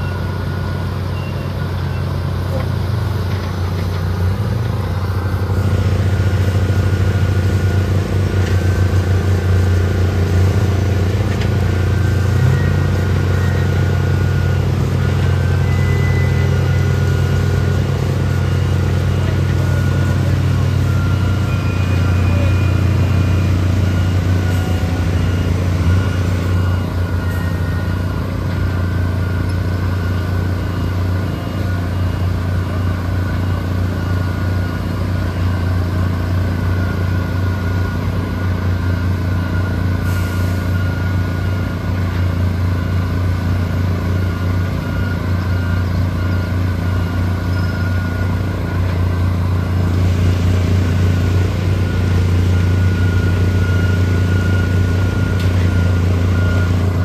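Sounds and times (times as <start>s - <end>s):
faint steady high tone: 0.0s - 2.6s, 12.0s - 41.6s, 44.0s - 49.8s
heavy pump engine humming: 0.0s - 57.0s.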